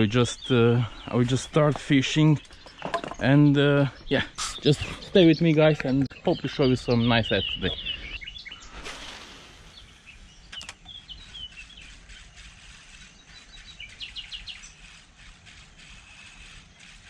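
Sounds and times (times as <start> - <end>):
small birds chirping and singing: 0.0 - 17.0
short rushing sound: 8.7 - 10.1
sharp clicks: 10.5 - 11.0.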